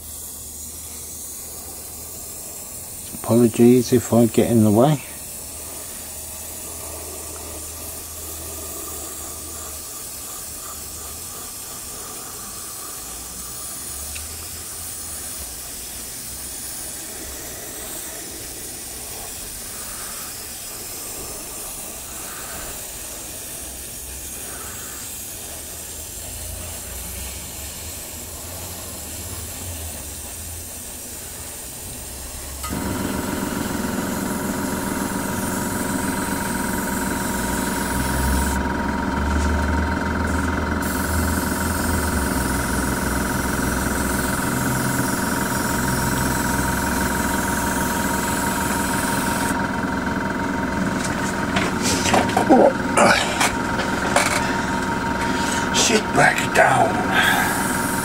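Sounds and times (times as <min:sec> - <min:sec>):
airbrush hissing: 0:00.0 - 0:58.0
machine hum: 0:00.3 - 0:14.8, 0:32.4 - 0:58.0.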